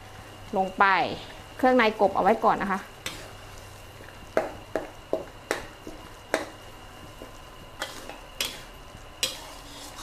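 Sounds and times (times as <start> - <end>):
metal spatula scraping a wok: 7.8 - 10.0.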